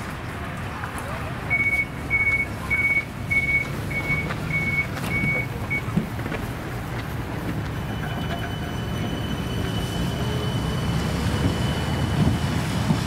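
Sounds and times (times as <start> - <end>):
tram door warning beeps: 1.4 - 6.2, 7.5 - 13.0
traction drive whine: 1.5 - 13.0.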